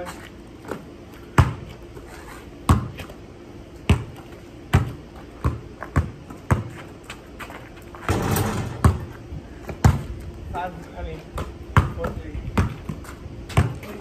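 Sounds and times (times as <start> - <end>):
basketball bouncing on concrete: 0.6 - 1.8, 2.6 - 3.2, 3.8 - 6.9, 7.9 - 10.2, 11.4 - 14.0.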